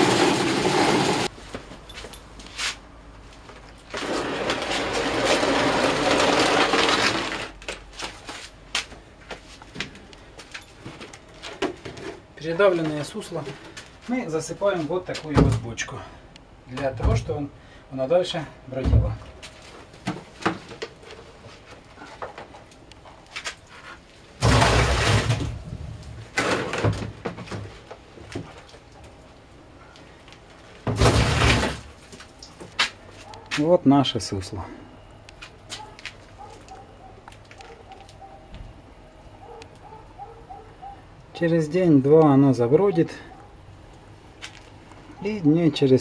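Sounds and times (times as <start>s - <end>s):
grapes crunching in crusher: 0.0s - 1.3s, 3.6s - 8.4s, 24.3s - 27.2s, 30.8s - 32.9s.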